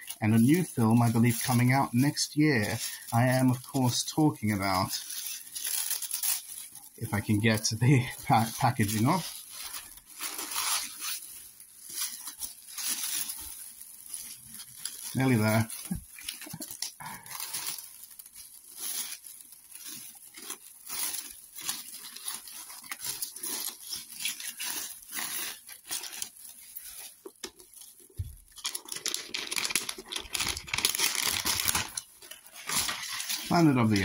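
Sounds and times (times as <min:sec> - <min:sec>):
paper crinkling and tearing: 0:00.0 - 0:34.0.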